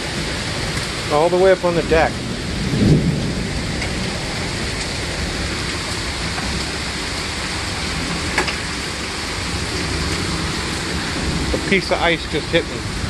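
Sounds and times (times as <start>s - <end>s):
heavy rain and hail: 0.0s - 13.0s
hail ticks: 3.3s - 10.4s.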